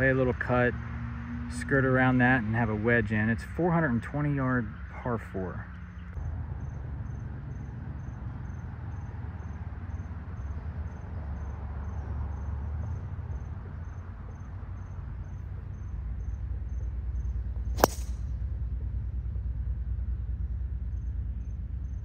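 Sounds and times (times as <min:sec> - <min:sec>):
insect chirping: 0:05.7 - 0:18.4, 0:20.1 - 0:22.0
golf ball struck by driver: 0:17.7 - 0:18.3.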